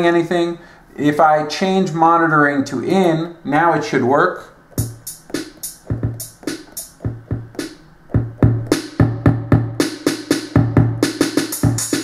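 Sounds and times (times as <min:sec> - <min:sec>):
drum machine kick thumps: 0:04.7 - 0:12.0
sharp drum machine hits: 0:04.8 - 0:12.0.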